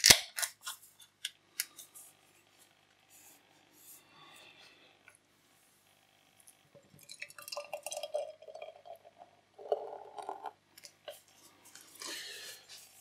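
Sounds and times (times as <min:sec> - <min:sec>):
beer pouring into a glass: 0:06.9 - 0:10.6.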